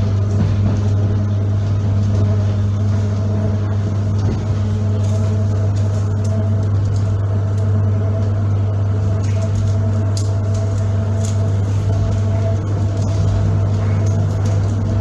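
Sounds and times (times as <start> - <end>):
train running noise: 0.0 - 15.0.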